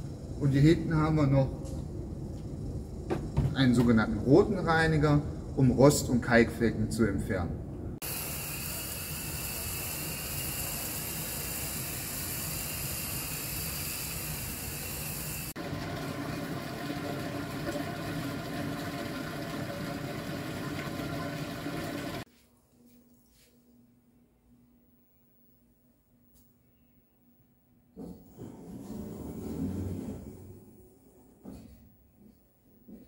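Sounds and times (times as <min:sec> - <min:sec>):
water spray hissing on tiles: 0:08.0 - 0:15.6.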